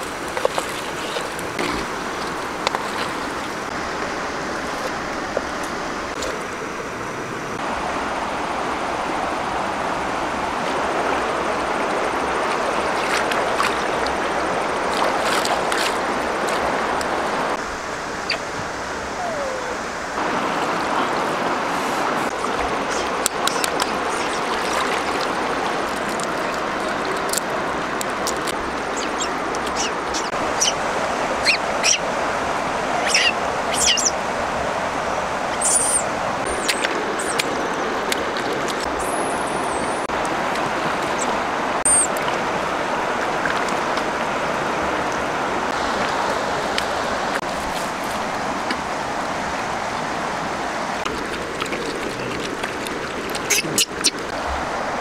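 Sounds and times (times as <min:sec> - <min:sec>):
flowing river water: 0:00.0 - 0:55.0
high chirps and squeaks: 0:29.0 - 0:30.8, 0:31.4 - 0:32.0, 0:33.0 - 0:34.2, 0:35.5 - 0:37.4, 0:41.2 - 0:42.1, 0:53.5 - 0:54.2.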